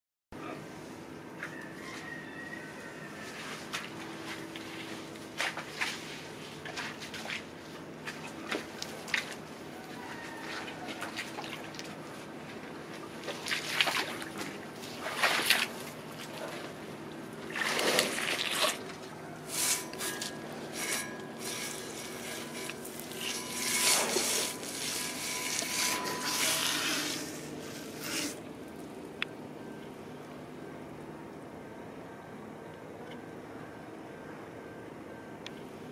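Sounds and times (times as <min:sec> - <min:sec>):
wet mud squelching and sloshing: 0:05.4 - 0:09.5, 0:10.4 - 0:16.8, 0:17.4 - 0:20.3.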